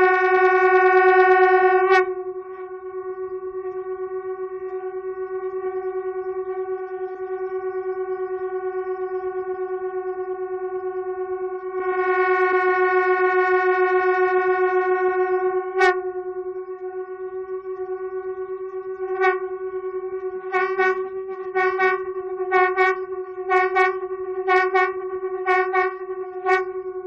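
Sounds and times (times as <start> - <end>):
conch shells droning: 0.0 - 27.0.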